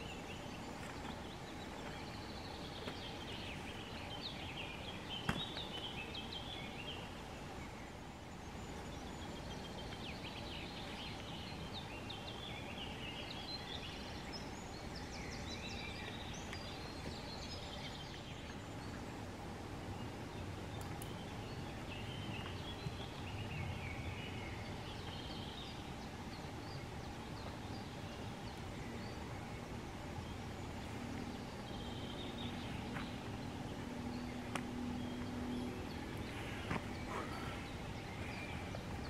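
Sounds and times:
small birds chirping: 0.0 - 39.0.

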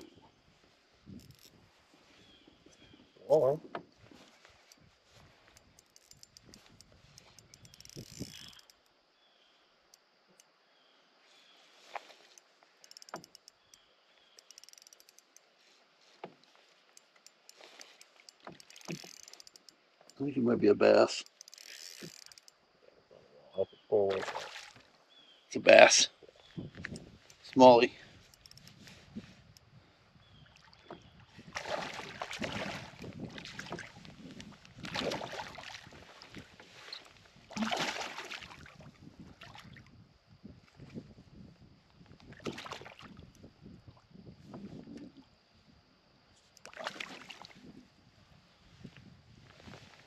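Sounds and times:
fishing reel clicking: 5.5 - 8.9, 12.3 - 15.5, 16.9 - 20.2, 21.2 - 22.6, 28.2 - 28.8
fish splashing at the surface: 24.1 - 24.9, 31.5 - 33.9, 34.8 - 36.0, 37.5 - 39.8.

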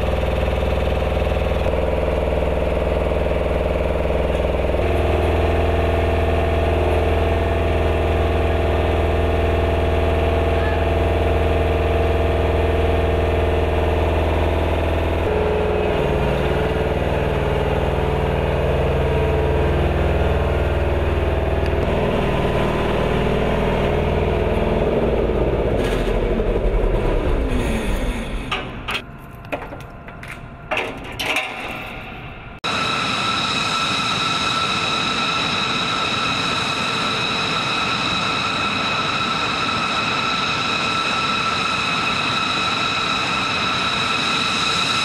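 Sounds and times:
vehicle engine running: 0.0 - 30.4.

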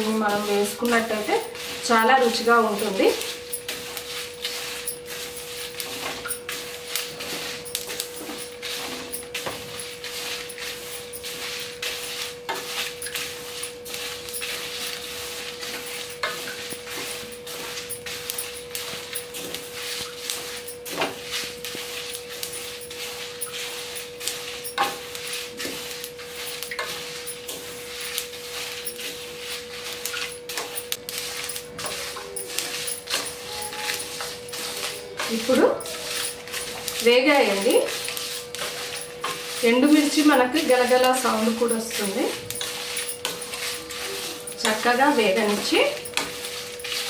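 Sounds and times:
seeds rustling in a pan: 0.0 - 47.0
steady hum: 0.0 - 47.0.

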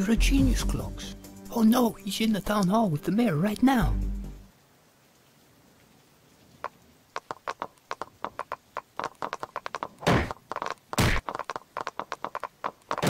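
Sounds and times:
wooden clogs clattering on pavement: 7.2 - 13.0
bodies thudding on ground: 10.0 - 10.4, 11.0 - 11.4.

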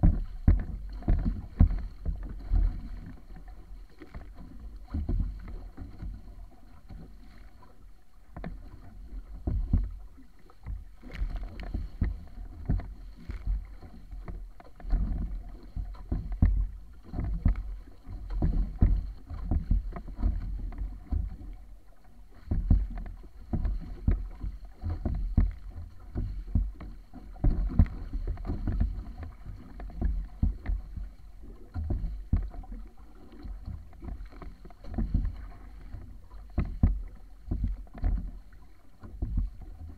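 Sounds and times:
water splashing against hull: 0.0 - 39.9
wind rumble on microphone: 0.0 - 39.9.

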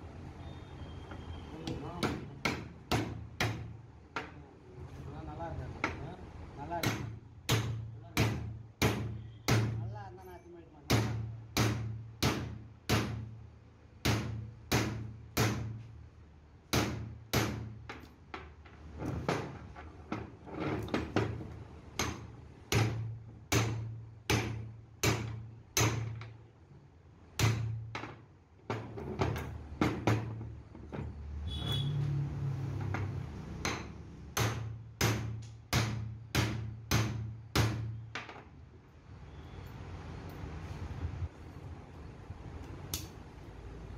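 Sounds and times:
hammer striking metal: 33.6 - 38.0.

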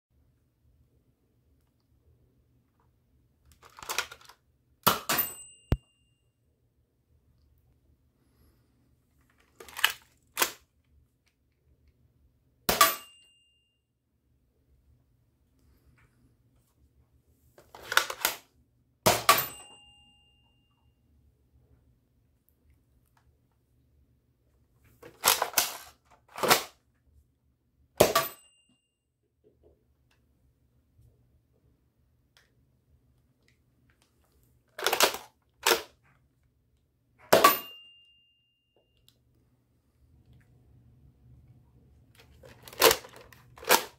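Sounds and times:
dart hit with metallic ring: 12.7 - 13.3, 37.3 - 38.0.

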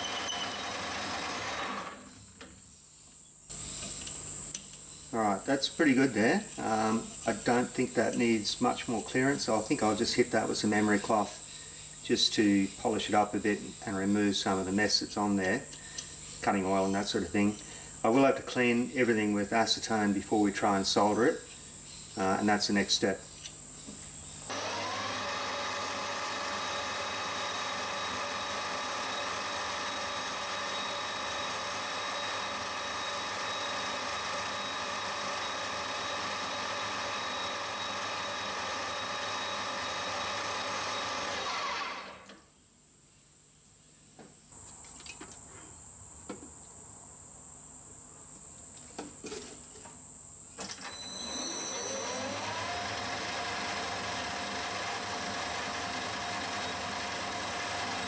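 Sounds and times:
metal lathe gear whine: 0.0 - 2.2, 24.5 - 42.3, 50.6 - 58.0.

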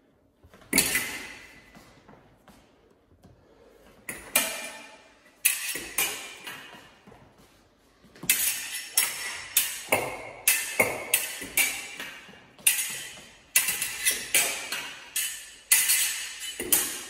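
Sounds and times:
fencing blades clashing: 0.6 - 2.7, 3.9 - 17.0.

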